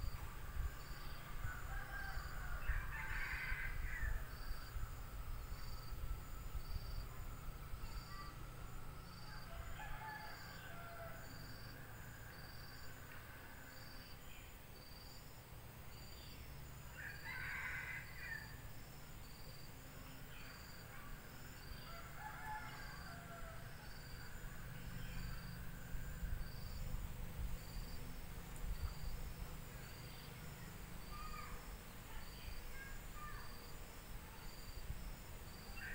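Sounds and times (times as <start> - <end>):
crickets chirping: 0.0 - 35.9
distant rooster crowing: 1.3 - 4.7, 9.0 - 11.8, 16.9 - 18.6, 21.8 - 24.1.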